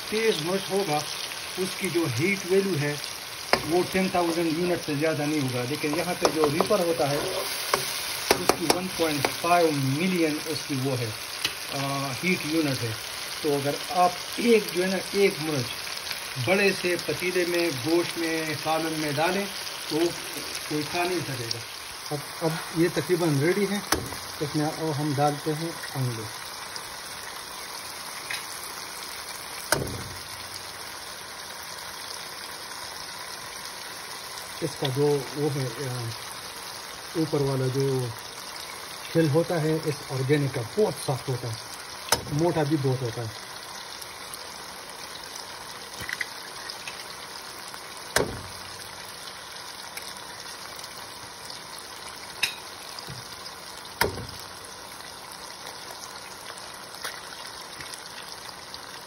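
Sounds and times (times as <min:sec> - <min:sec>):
masala sizzling in a frying pan: 0:00.0 - 0:59.0
egg cracked against pan: 0:07.5 - 0:09.4, 0:23.9 - 0:24.3, 0:29.7 - 0:30.3, 0:45.9 - 0:47.1, 0:48.1 - 0:48.7, 0:52.4 - 0:53.3, 0:54.0 - 0:54.5, 0:57.0 - 0:57.9.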